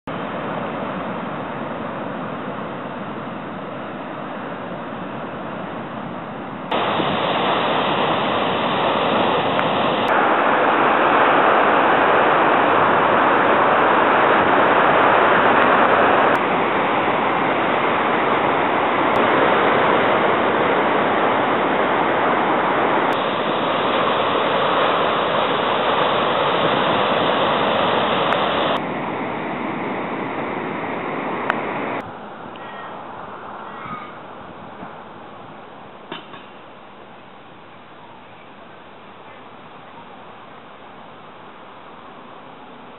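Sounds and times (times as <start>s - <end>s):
wind: 0.0s - 42.9s
surf: 0.1s - 32.8s.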